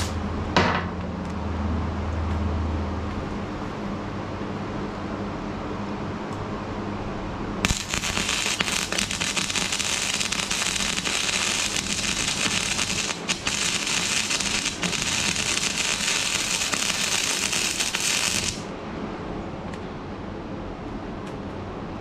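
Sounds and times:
welder arc crackling: 7.6s - 18.7s.

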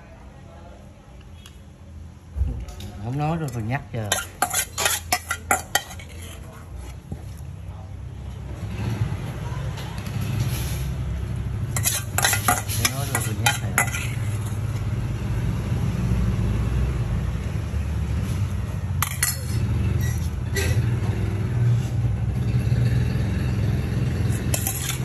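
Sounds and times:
spoon clinking against metal bowl: 3.4s - 6.4s, 11.8s - 14.3s, 19.0s - 20.2s.

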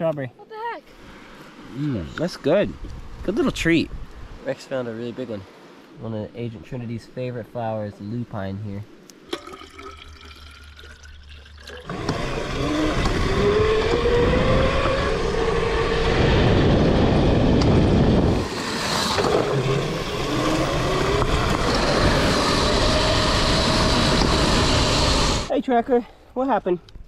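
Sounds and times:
dirt bike engines accelerating: 11.8s - 25.5s.

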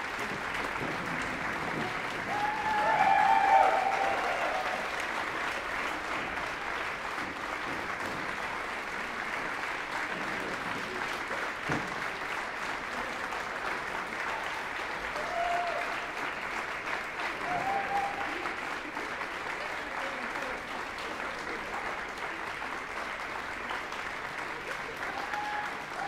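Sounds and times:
calls from crowd: 0.0s - 7.1s, 14.1s - 20.6s, 23.6s - 26.0s
audience applauding: 0.0s - 26.0s.

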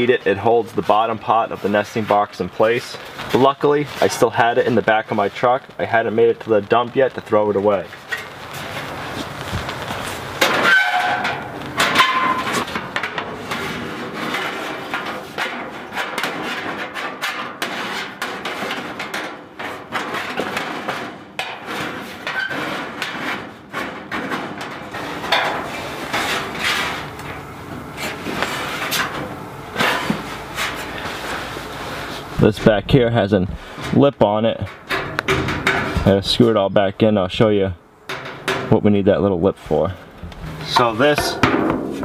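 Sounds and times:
sheet metal clanking and rattling: 10.4s - 30.8s, 34.6s - 36.2s, 38.1s - 38.8s, 40.3s - 42.0s
metallic ringing: 40.6s - 42.0s.

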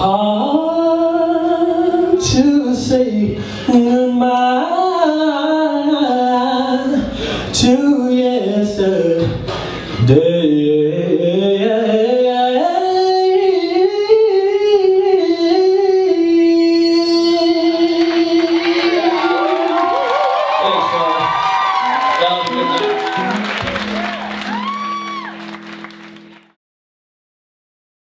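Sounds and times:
man singing a cappella: 0.0s - 19.9s.

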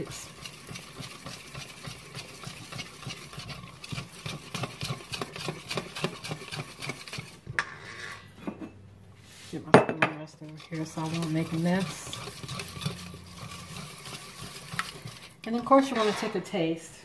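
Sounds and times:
whisk ticking in metal bowl: 0.0s - 7.5s, 10.4s - 15.9s.

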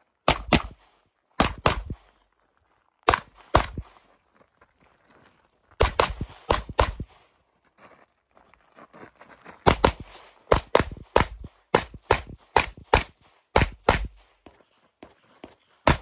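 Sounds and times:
rapid pistol shots: 0.2s - 2.0s, 5.8s - 7.2s, 9.7s - 14.3s.

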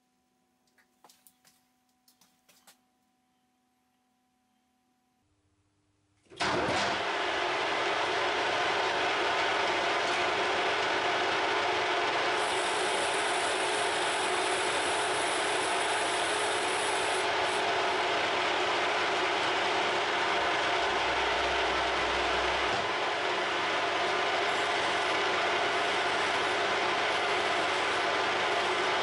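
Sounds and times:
lathe gears whirring: 7.3s - 29.0s.

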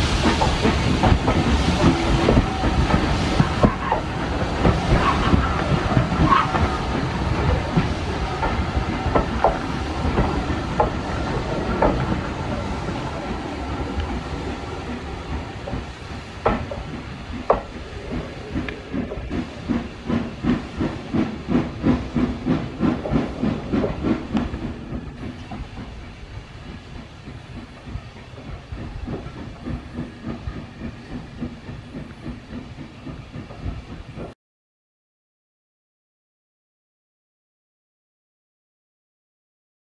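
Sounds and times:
steam locomotive chuffing: 0.0s - 34.4s.

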